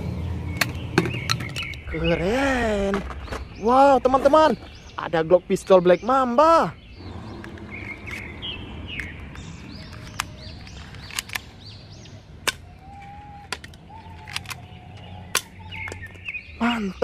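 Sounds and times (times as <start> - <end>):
birds chirping faintly: 0.0 - 17.0
toy pistol snapping clicks: 13.5 - 16.1.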